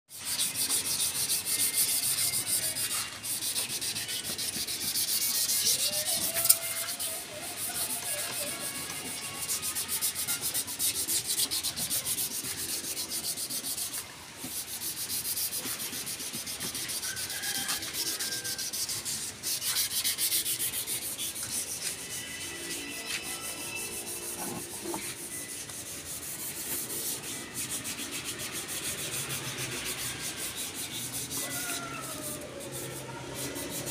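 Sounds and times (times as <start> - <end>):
sandpaper rubbing on metal: 0.1 - 33.9.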